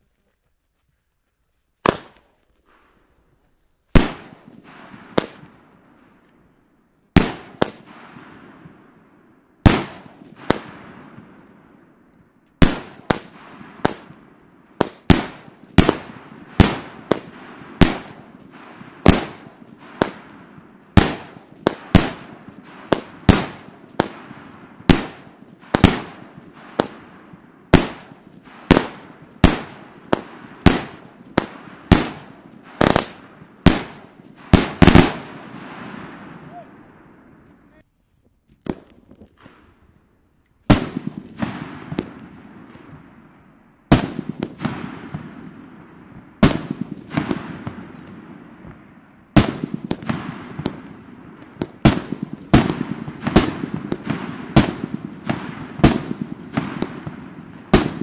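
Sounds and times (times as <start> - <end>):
firework salute bangs: 46.4 - 58.0.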